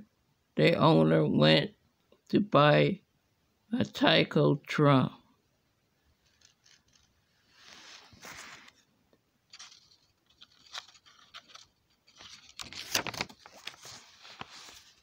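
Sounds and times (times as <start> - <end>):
book pages rustling: 6.2 - 8.9, 9.5 - 15.0.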